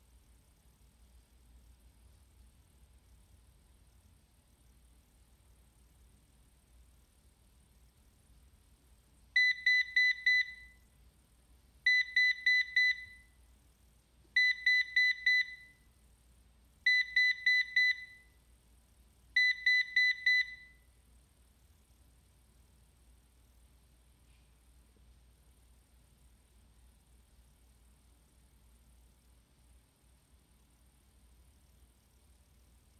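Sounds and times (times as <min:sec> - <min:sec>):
robot vacuum alarm beeps: 0:09.4 - 0:10.8, 0:11.9 - 0:13.3, 0:14.4 - 0:15.8, 0:16.9 - 0:18.3, 0:19.4 - 0:20.8.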